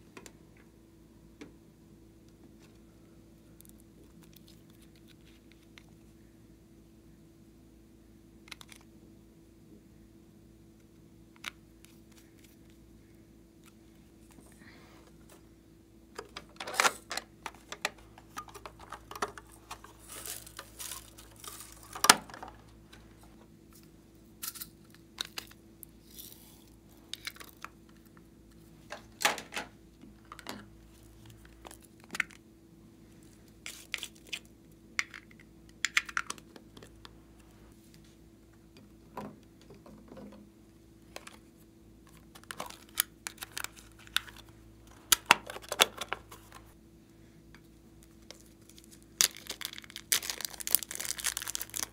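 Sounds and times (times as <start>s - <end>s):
plastic containers clicking and snapping: 16.2s - 22.7s, 35.0s - 36.9s, 45.1s - 46.6s.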